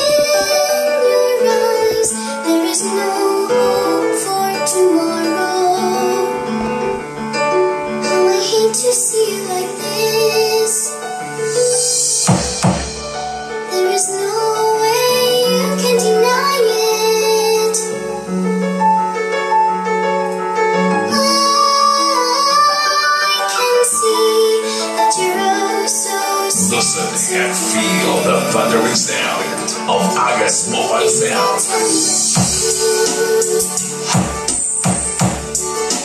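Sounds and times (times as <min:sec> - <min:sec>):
woman singing: 0:00.0 - 0:07.0, 0:08.0 - 0:11.5, 0:13.6 - 0:18.3, 0:21.0 - 0:29.9, 0:31.0 - 0:34.5
keyboard backing: 0:00.0 - 0:36.0.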